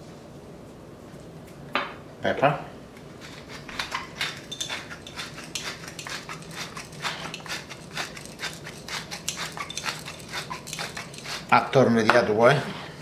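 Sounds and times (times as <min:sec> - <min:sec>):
pepper mill grinding: 0:03.2 - 0:12.1.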